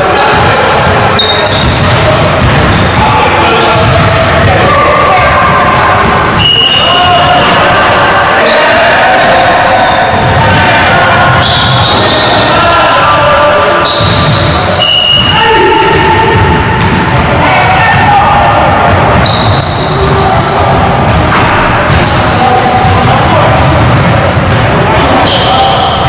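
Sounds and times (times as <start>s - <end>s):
sneaker squeaks: 0.0s - 10.3s, 11.3s - 17.6s, 18.4s - 22.9s, 23.7s - 26.0s
players' voices: 0.0s - 26.0s
basketball bouncing on court: 0.3s - 7.6s, 10.1s - 10.6s, 13.8s - 24.8s.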